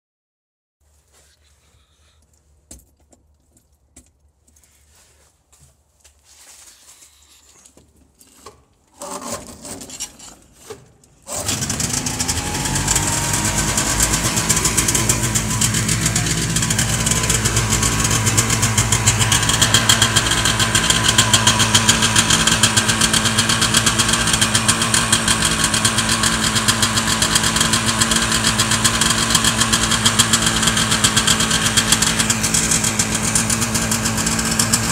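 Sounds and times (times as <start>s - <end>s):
aircraft engine starting and running: 11.3s - 34.9s.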